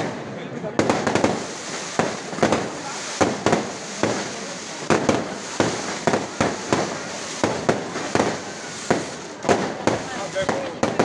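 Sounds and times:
firework crackling hiss: 0.0 - 11.0.

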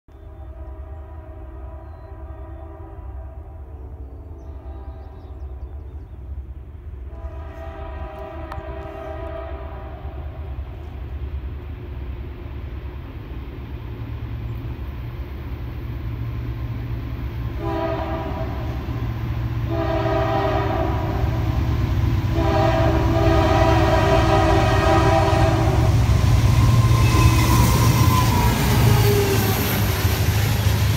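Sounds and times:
diesel locomotive engine rumble: 0.1 - 30.9
locomotive horn blasts: 0.2 - 5.4, 7.0 - 10.6, 17.6 - 19.0, 19.6 - 21.6, 22.2 - 28.3.

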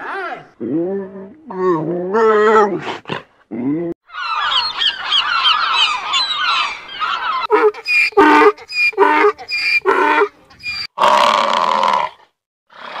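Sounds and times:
donkey braying: 3.6 - 11.5
gulls calling: 4.1 - 11.0
lynx wavering calls: 4.1 - 11.0.

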